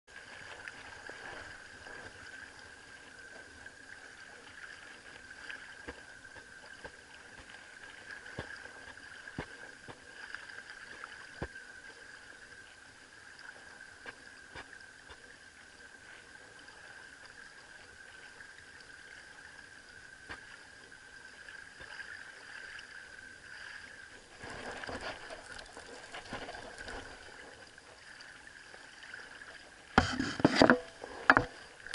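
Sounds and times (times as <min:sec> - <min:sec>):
water lapping on pebbles: 0:00.1 - 0:31.9.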